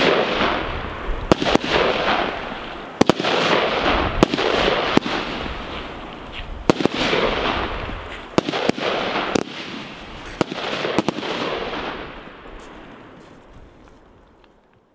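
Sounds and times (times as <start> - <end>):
firework bangs: 0.0 - 13.5.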